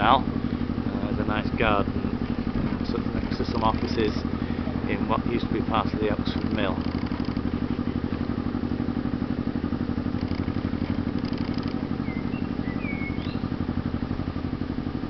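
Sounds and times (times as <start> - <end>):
boat diesel engine running: 0.0 - 15.0
high bird chirps: 11.5 - 13.5.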